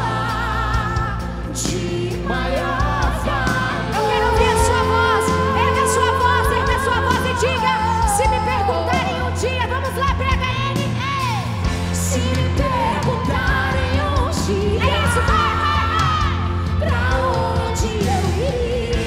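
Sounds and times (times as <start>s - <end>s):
person singing: 0.0s - 9.6s
bass line: 0.0s - 19.0s
drum and cymbal beat: 0.0s - 19.0s.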